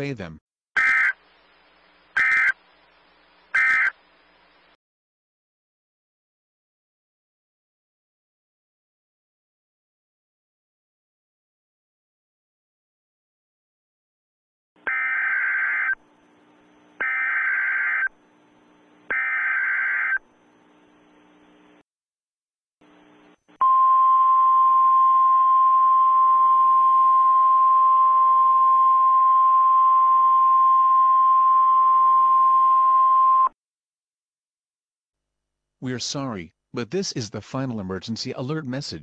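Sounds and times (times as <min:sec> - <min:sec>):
faint radio hiss: 0:00.0 - 0:04.8, 0:15.5 - 0:19.1, 0:19.7 - 0:21.8, 0:22.8 - 0:23.5
screeching data tones: 0:03.6 - 0:04.0, 0:14.8 - 0:16.0, 0:17.0 - 0:18.1, 0:19.1 - 0:20.3.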